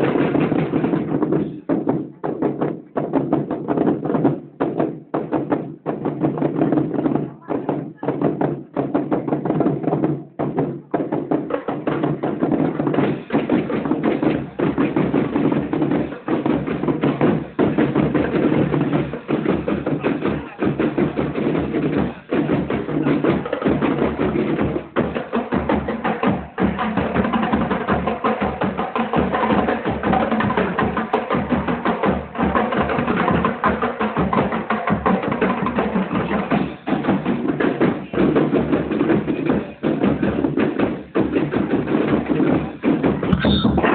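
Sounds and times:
marching drums beat: 0:00.0 - 0:43.9
marching band brass: 0:11.8 - 0:43.9.

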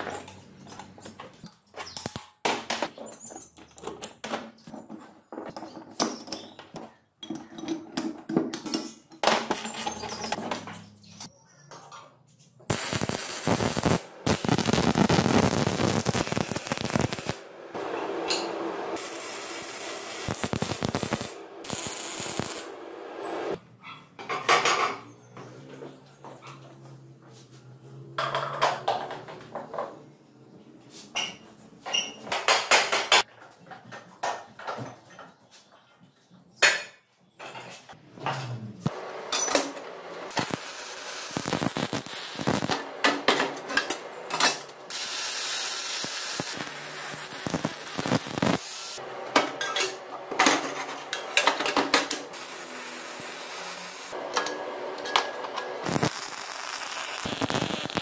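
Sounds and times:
welder crackling and hissing: 0:12.7 - 0:17.5, 0:18.9 - 0:23.6, 0:38.8 - 0:43.0, 0:44.6 - 0:49.1, 0:52.0 - 0:54.2, 0:55.8 - 0:58.0.

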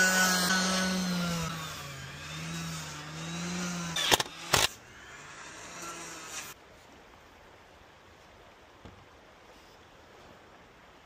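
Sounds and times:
motor humming: 0:00.0 - 0:06.6.

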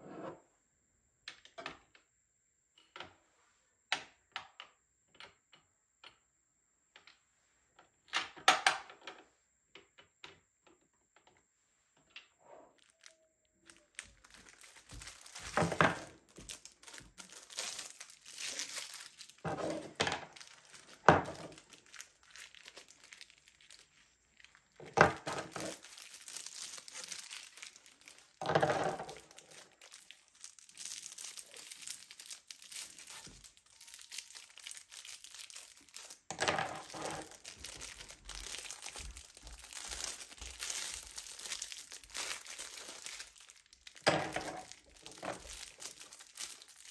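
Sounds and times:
plastic sleeves crinkling: 0:12.7 - 0:46.9.

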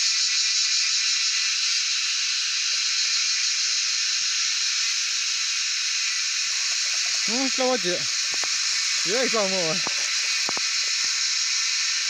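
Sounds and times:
cicadas buzzing: 0:00.0 - 0:12.0.

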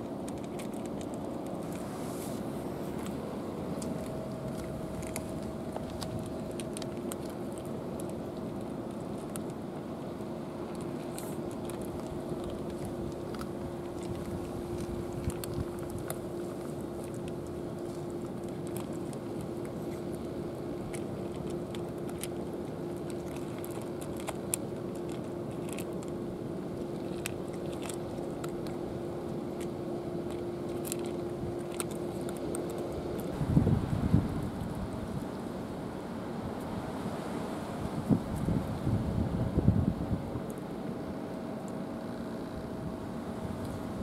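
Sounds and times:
cats crunching dry food: 0:00.0 - 0:33.4
steady low hum: 0:00.0 - 0:44.0.

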